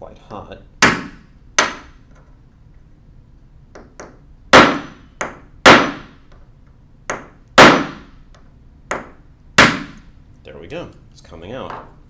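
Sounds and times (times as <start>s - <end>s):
hammer striking metal punch: 0.8s - 2.0s, 3.8s - 6.2s, 7.1s - 8.2s, 8.9s - 10.0s.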